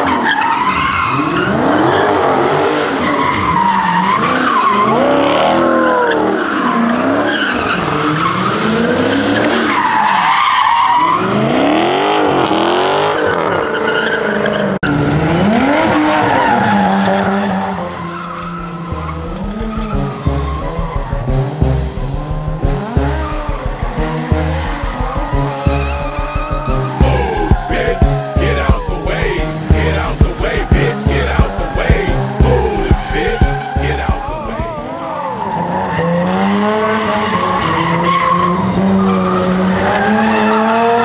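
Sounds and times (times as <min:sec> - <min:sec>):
tires squealing and skidding: 0:00.0 - 0:21.3, 0:22.8 - 0:28.3, 0:30.9 - 0:41.0
car engines revving: 0:00.0 - 0:41.0
regular thumps: 0:18.6 - 0:34.8.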